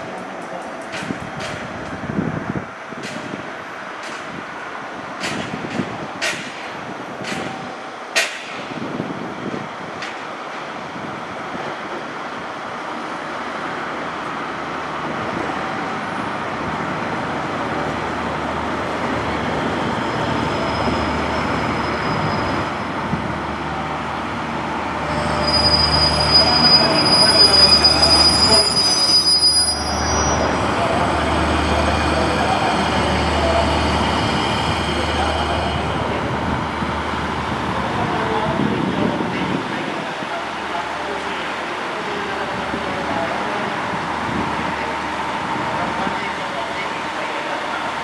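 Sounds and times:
train engine and wheel rumble: 0.0s - 48.0s
high brake squeal: 20.2s - 22.9s, 25.0s - 30.6s.

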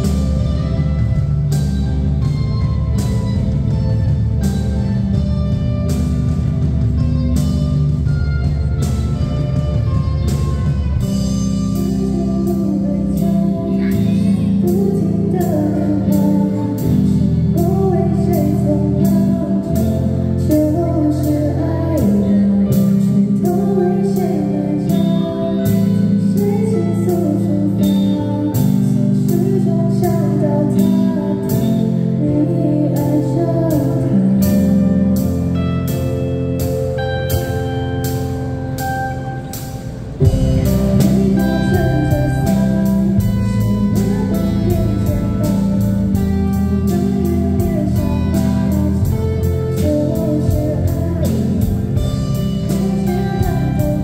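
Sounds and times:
bass guitar: 0.0s - 54.0s
electric guitars: 0.0s - 54.0s
keyboard: 0.0s - 54.0s
woman singing: 11.0s - 36.1s, 40.2s - 54.0s.

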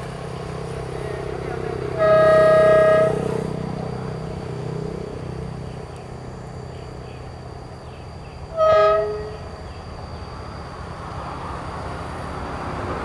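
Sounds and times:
diesel engine rumble: 0.0s - 13.0s
locomotive horn blast: 1.0s - 4.3s, 8.5s - 9.6s.

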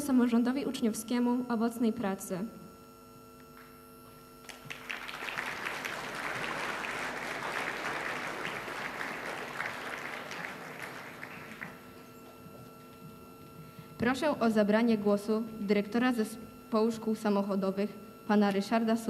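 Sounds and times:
audience applauding: 4.4s - 12.4s.

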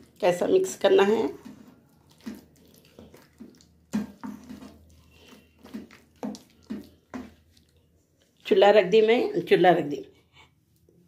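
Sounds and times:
spoon stirring meat squelching: 0.0s - 9.1s.

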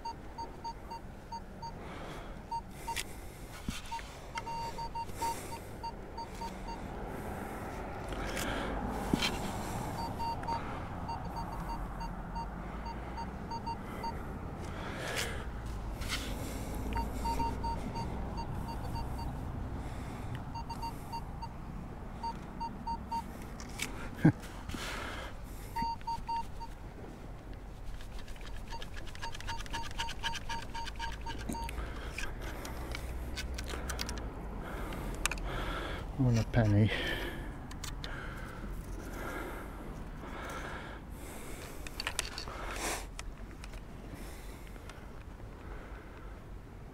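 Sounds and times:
metal detector beeps: 0.0s - 1.8s, 2.5s - 3.0s, 3.8s - 6.9s, 10.0s - 14.2s, 16.9s - 19.4s, 20.5s - 21.6s, 22.2s - 23.3s, 25.8s - 26.8s, 28.4s - 31.8s.

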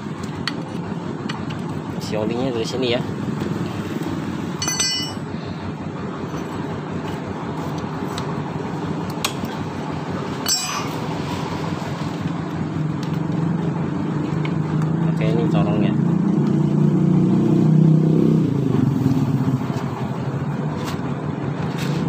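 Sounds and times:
low mechanical hum: 0.0s - 16.9s
metallic clinks: 4.6s - 5.2s, 10.4s - 11.0s.

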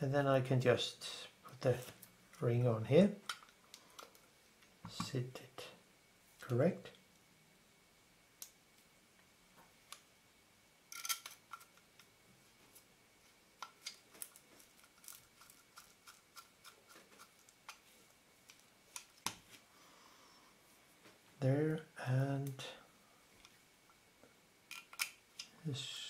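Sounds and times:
small clicks and scraping: 10.9s - 12.1s, 13.6s - 19.6s, 24.7s - 25.6s.

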